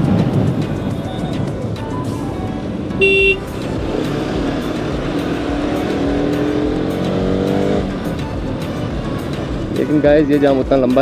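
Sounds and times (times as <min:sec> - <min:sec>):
road and wind noise: 0:00.0 - 0:11.0
motorcycle engine accelerating: 0:02.5 - 0:09.8.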